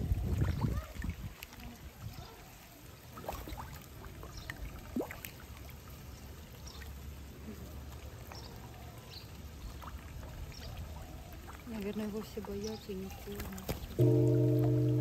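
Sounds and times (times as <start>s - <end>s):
water trickling: 0.0s - 15.0s
water drips plinking: 7.8s - 15.0s.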